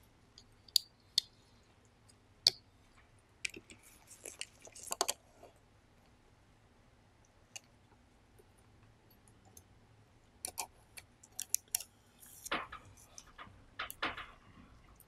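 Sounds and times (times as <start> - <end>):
sheet metal plates clicking: 12.5 - 14.5.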